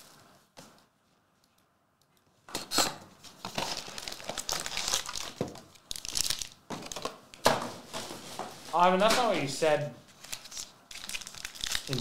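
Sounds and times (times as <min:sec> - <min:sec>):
foil packs crinkling: 0:03.4 - 0:07.2, 0:10.1 - 0:12.0.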